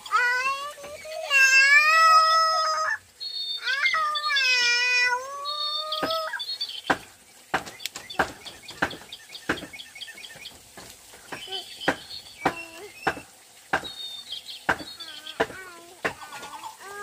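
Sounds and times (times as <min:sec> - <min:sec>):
high wailing cries: 0:00.0 - 0:06.5
sharp clicks and knocks: 0:06.9 - 0:14.0.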